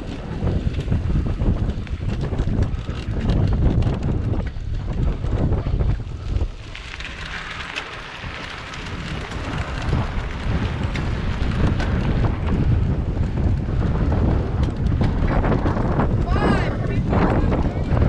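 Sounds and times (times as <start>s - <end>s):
bike rattling: 0.0s - 18.0s
wind buffeting microphone: 0.0s - 18.0s
tyres crunching over gravel: 6.1s - 12.6s.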